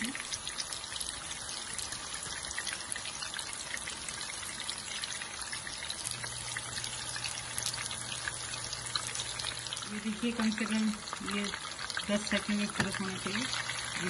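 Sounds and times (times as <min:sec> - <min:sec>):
meat sizzling in hot oil: 0:00.0 - 0:14.0.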